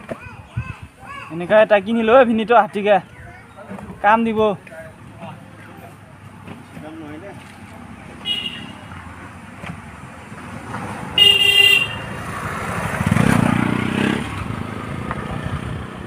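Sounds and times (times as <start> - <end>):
scooter horn honk: 8.2 - 8.9, 11.2 - 12.2
scooter riding past: 11.9 - 16.0.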